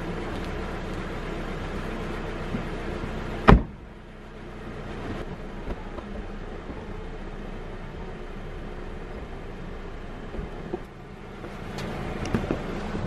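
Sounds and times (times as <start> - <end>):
car door slamming: 3.4 - 3.9.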